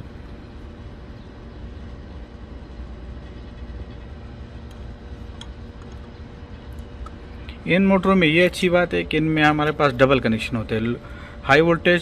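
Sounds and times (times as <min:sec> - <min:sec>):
faint hum: 0:00.0 - 0:12.0
low background rumble: 0:00.0 - 0:12.0.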